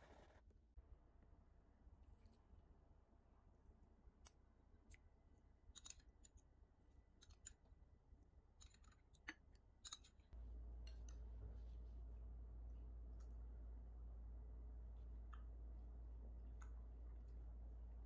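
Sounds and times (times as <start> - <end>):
steady low hum: 10.3 - 18.0.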